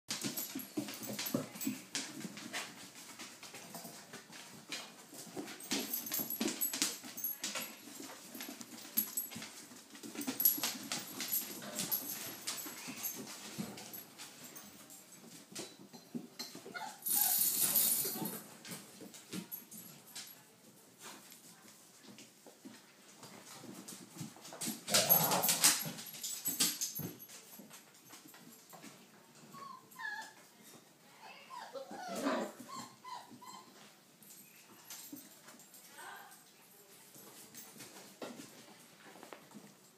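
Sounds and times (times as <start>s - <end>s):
dogs making sounds: 16.6s - 18.5s, 24.7s - 26.4s, 31.2s - 35.3s.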